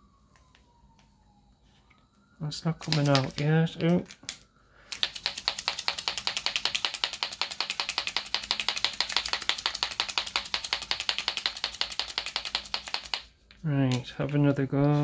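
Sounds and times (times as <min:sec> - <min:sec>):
marker mixing ball rattling: 0:02.8 - 0:03.6, 0:04.9 - 0:13.6.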